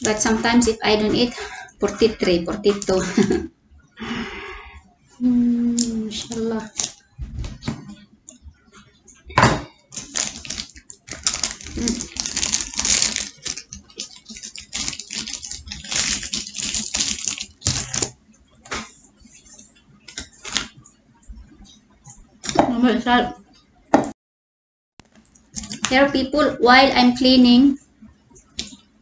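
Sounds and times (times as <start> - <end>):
paper wrapper crinkling: 6.1 - 7.7, 9.9 - 18.9, 19.5 - 20.8, 25.5 - 25.9.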